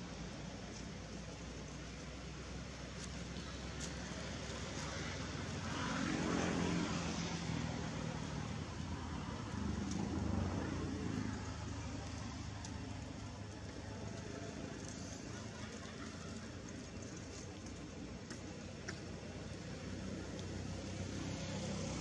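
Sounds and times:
vehicle passing: 4.0 - 16.7, 19.3 - 22.0.

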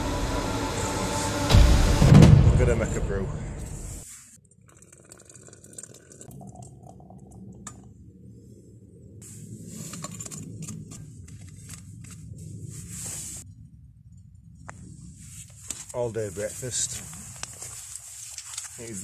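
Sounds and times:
hot water pouring into flask: 4.4 - 7.8.

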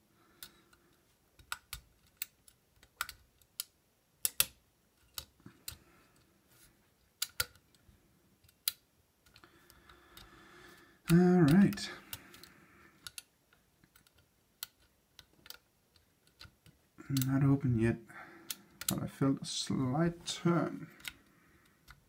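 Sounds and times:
lock pick metallic clicks: 0.3 - 5.8, 7.2 - 7.7, 11.1 - 17.3.

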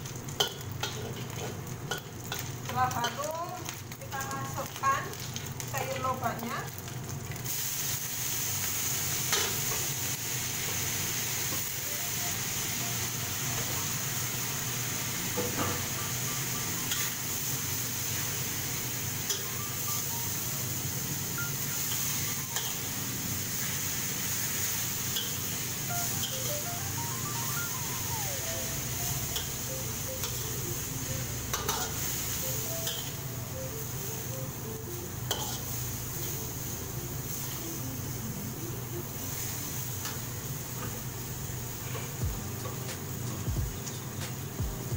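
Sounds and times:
food sizzling in a wok: 0.0 - 44.9
metal spatula scraping wok: 35.3 - 36.4.

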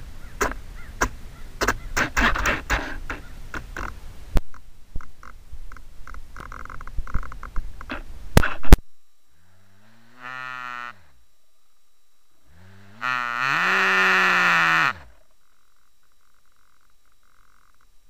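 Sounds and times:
crackling and clicks: 3.5 - 8.8
cow mooing: 12.5 - 15.2.

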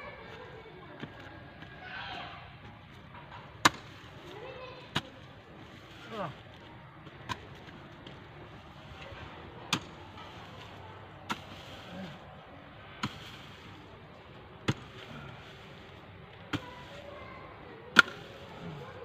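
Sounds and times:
hoe chopping into dry earth: 13.0 - 13.8, 14.6 - 15.9, 17.9 - 18.8.

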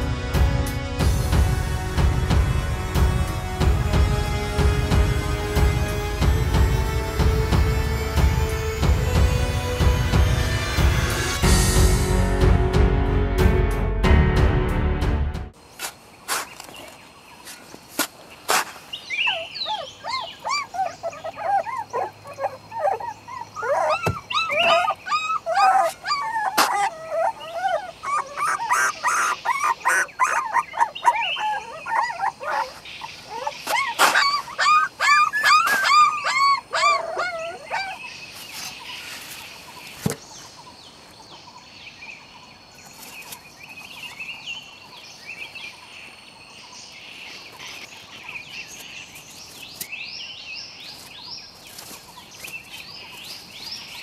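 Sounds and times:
faint high chirping: 19.0 - 40.8
puppies whimpering and yelping: 19.1 - 38.5.

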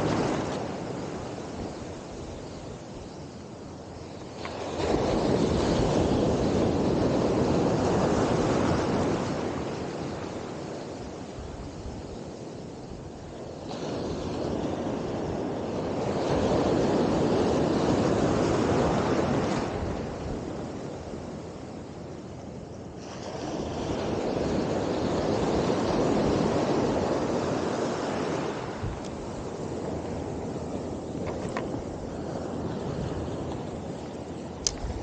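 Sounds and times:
surf breaking on beach: 0.0 - 2.9.

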